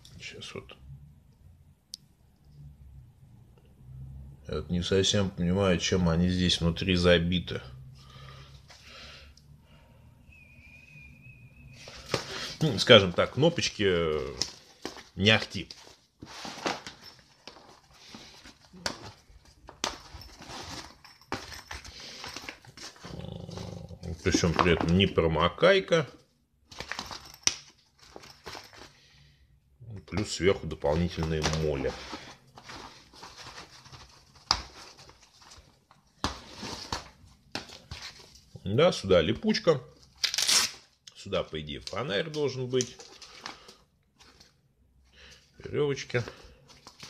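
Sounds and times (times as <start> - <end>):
fabric rustling and scraping: 15.8 - 24.5, 31.2 - 38.5
cloth rustling: 31.0 - 38.5.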